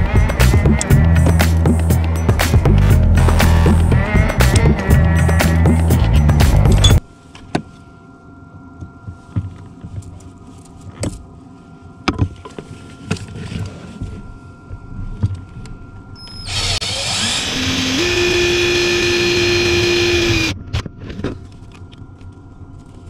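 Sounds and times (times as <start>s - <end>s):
cordless drill drilling: 16.2s - 20.6s.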